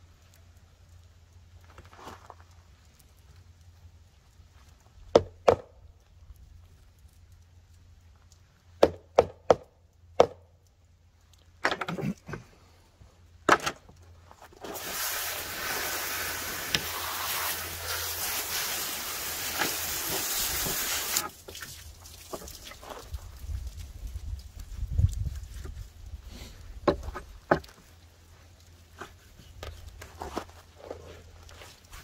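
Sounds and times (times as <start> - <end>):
hose spray nozzle hissing: 14.6 - 21.3.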